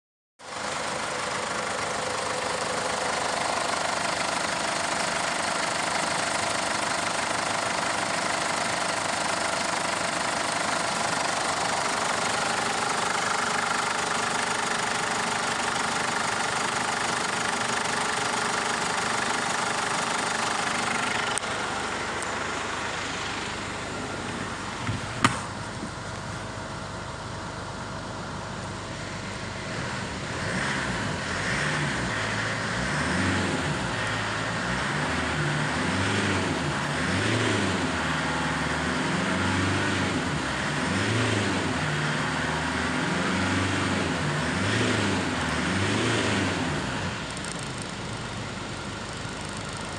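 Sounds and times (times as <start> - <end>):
diesel engine idling and revving: 0.4 - 49.9
sharp engine knock: 24.8 - 25.6.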